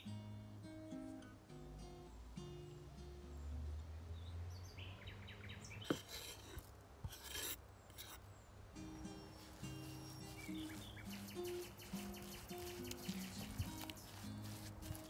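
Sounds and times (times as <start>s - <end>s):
small birds chirping: 1.8s - 6.6s, 7.2s - 15.0s
knife scraping cutting board: 5.8s - 8.2s.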